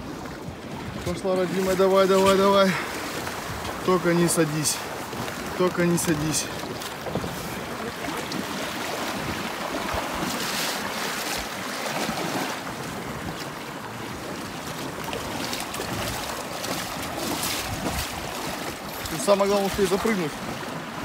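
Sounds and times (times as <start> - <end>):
river water rushing and splashing: 0.0 - 21.0
wind on microphone: 5.0 - 21.0.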